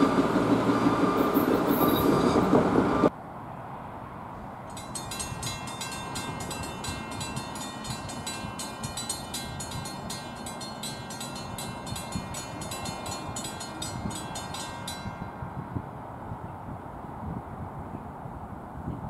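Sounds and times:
railroad crossing bells ringing: 0.0s - 3.1s, 4.7s - 15.8s.

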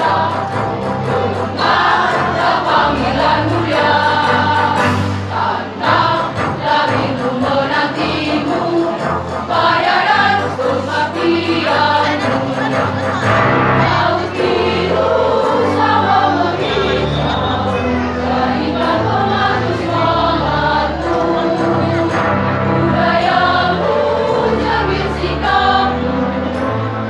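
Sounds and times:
women's choir singing a march: 0.0s - 26.9s.

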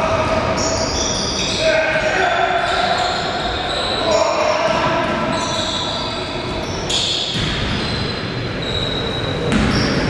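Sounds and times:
din of crowd and players: 0.0s - 10.0s
basketball bouncing on court: 7.3s - 8.1s, 9.4s - 10.0s.

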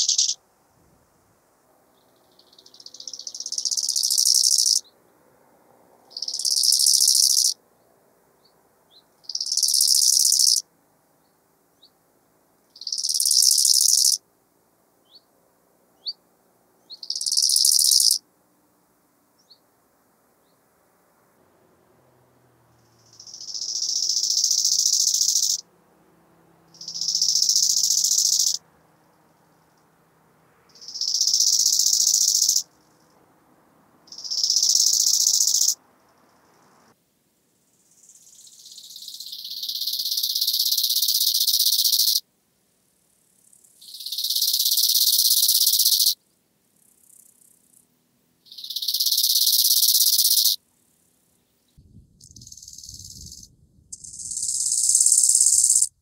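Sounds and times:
grasshopper stridulating: 0.0s - 0.4s, 2.3s - 4.8s, 6.1s - 7.6s, 9.2s - 10.6s, 12.7s - 14.2s, 17.0s - 18.2s, 22.9s - 25.6s, 26.7s - 28.6s, 30.7s - 33.2s, 34.0s - 36.9s, 37.5s - 42.3s, 42.9s - 51.4s, 52.0s - 56.0s.

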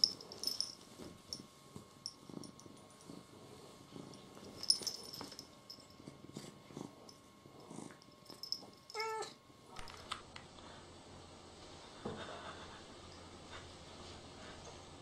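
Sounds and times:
rustling of fur and bedding: 0.0s - 9.1s
cat purring: 0.0s - 9.3s.

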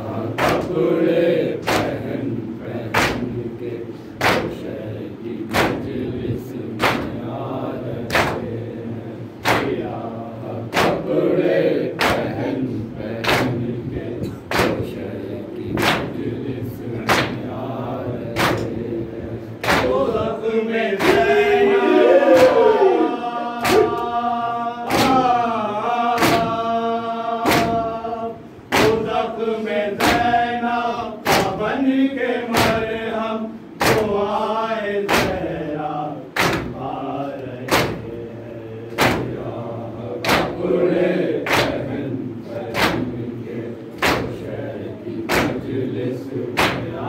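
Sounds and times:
people chanting a lament: 0.0s - 47.0s
hands slapping chests: 4.2s - 4.5s, 9.4s - 9.8s, 18.3s - 18.8s, 19.6s - 20.0s, 23.6s - 24.1s, 33.8s - 34.1s, 36.4s - 36.7s, 44.0s - 44.4s.

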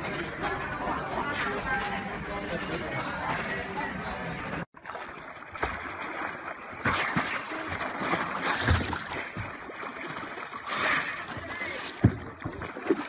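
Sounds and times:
water splashing against boat: 4.8s - 13.0s.

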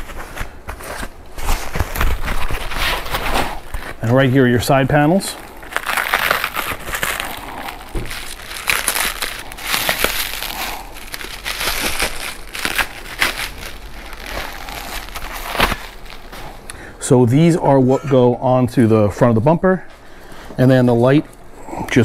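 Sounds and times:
plastic bag crinkling: 1.4s - 16.7s.

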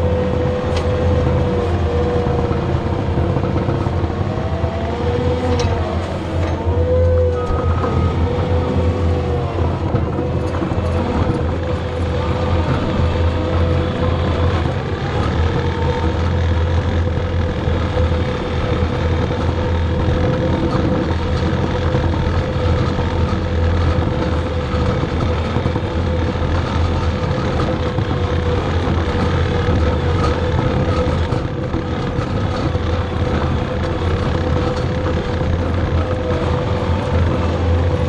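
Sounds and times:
skid steer engine running: 0.0s - 38.0s
steady whine: 0.0s - 38.0s.

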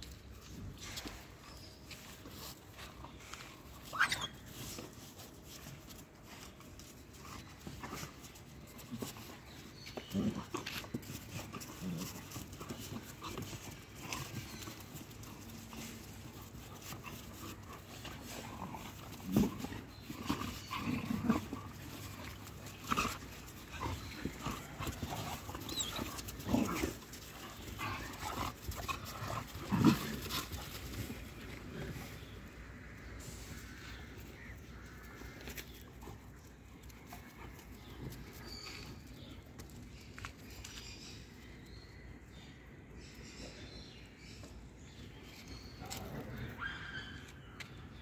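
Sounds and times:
dogs growling: 7.1s - 32.6s.

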